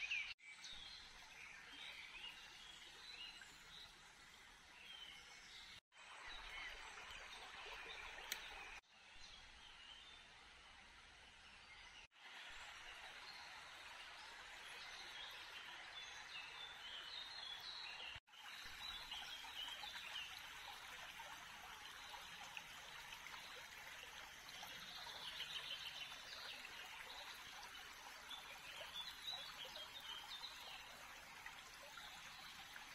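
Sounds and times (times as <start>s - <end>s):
rushing water: 6.0s - 8.8s, 12.2s - 32.9s.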